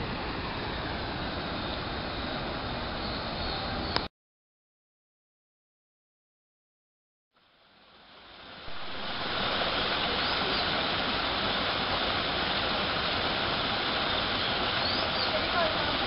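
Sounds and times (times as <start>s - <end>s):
waterfalls splashing over rocks: 8.1s - 16.0s.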